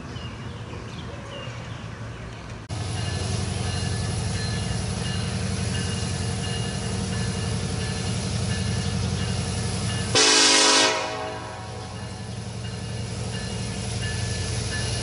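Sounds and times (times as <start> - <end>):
diesel locomotive engines droning: 0.0 - 15.0
locomotive horn blast: 10.0 - 12.0.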